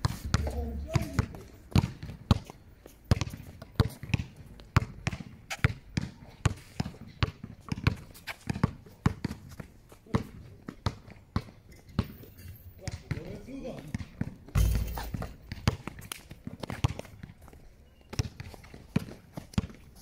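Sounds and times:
basketball bouncing on hard court: 0.0s - 2.5s, 3.1s - 6.2s, 6.8s - 9.4s, 12.9s - 13.3s, 13.9s - 16.0s.

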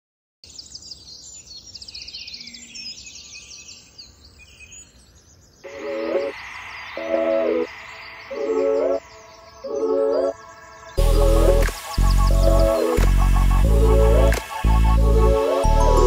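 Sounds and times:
birds chirping and trilling: 0.5s - 16.0s
steady hiss: 5.6s - 16.0s.

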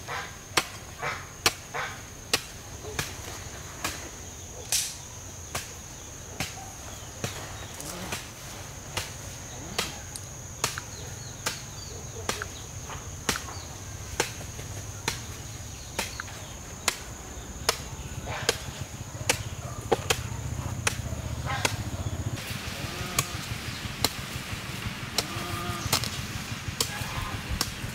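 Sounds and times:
hand tool chopping: 9.0s - 12.6s, 13.2s - 21.8s, 23.1s - 23.4s, 24.0s - 24.3s, 25.1s - 26.2s, 26.8s - 27.9s
insect trilling: 21.5s - 23.8s, 25.1s - 27.6s.

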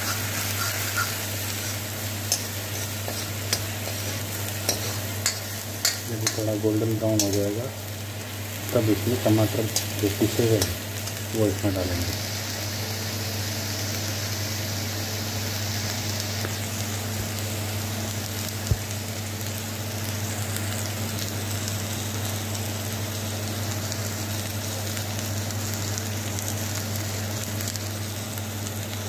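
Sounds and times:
steady low hum: 0.0s - 14.0s
paste sizzling in oil: 0.0s - 18.7s.

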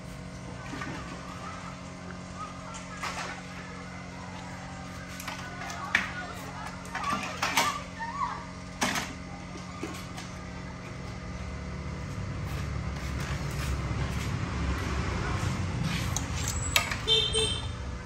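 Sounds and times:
vehicle engine rumble: 9.3s - 18.0s.

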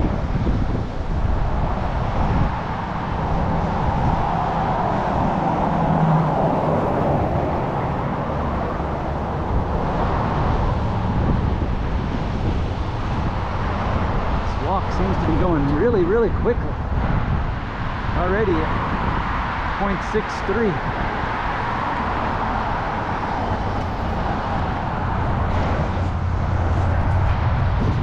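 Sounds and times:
cars passing on busy road: 0.0s - 28.0s
wind on microphone: 0.0s - 28.0s.

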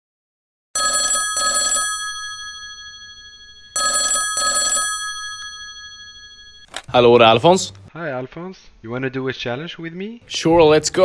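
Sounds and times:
telephone ringing: 0.8s - 6.8s.

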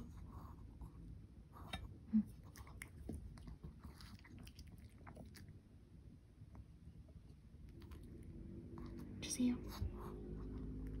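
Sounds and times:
dog chewing meat: 2.4s - 5.7s.

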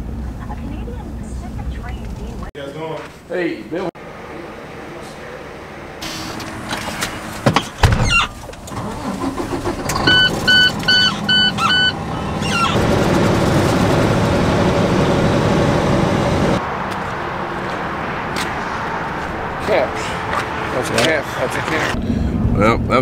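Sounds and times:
engine and road noise: 0.0s - 23.0s
truck engine starting: 4.0s - 22.7s
knocks and thump: 6.7s - 8.2s
dashboard warning chime beeping: 10.0s - 12.8s.

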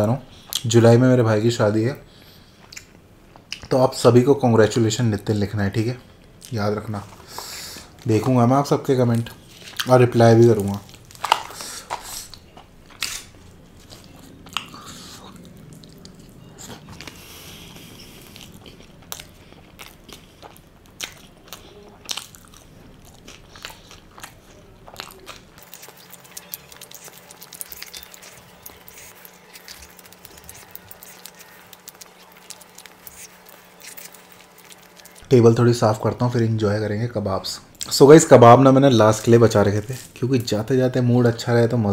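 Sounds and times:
faint hum: 0.0s - 41.9s
person chewing food: 10.5s - 35.3s.

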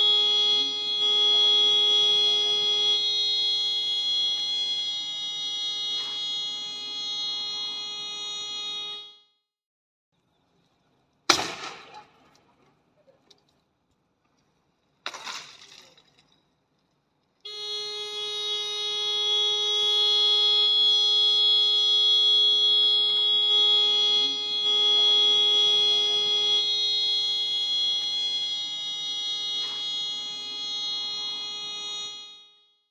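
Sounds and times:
car horn sounding continuously: 0.0s - 9.2s, 17.5s - 32.8s
sudden pop: 11.3s - 12.1s.

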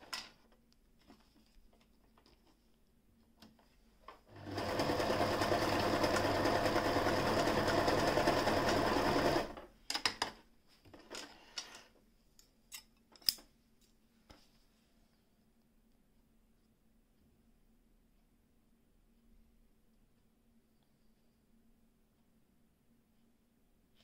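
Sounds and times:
sewing machine running: 4.3s - 9.6s.

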